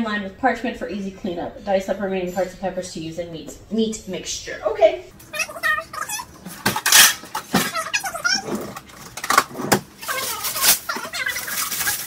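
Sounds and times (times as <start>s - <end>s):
baking sheet clanking against pans: 6.5s - 12.0s
drawer sliding and shutting: 8.4s - 9.9s.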